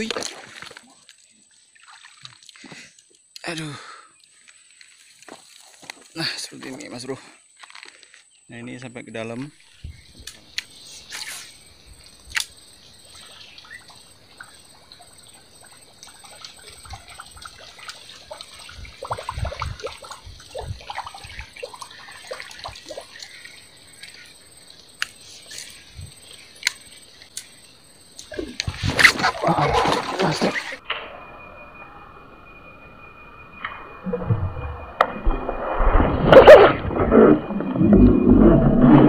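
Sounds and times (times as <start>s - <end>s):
water splashing and trickling: 0.0s - 6.6s, 9.5s - 30.8s.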